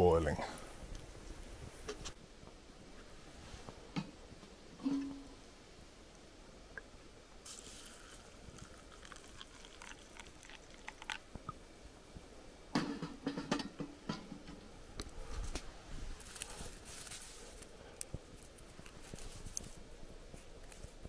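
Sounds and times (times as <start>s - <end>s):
fire crackling: 5.3s - 12.8s, 14.4s - 21.0s
rustling: 15.0s - 21.0s.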